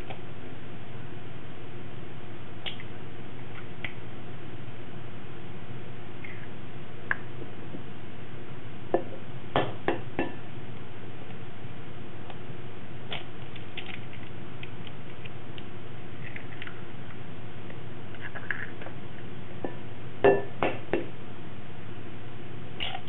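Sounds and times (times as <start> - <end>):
steady low hum: 0.0 - 23.0
eggs tapping on glass bowl: 19.6 - 21.1.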